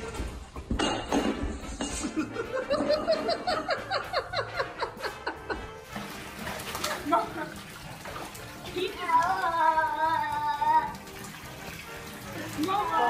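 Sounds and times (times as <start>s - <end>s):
music playing: 0.0s - 13.0s
person laughing hard: 1.9s - 5.8s.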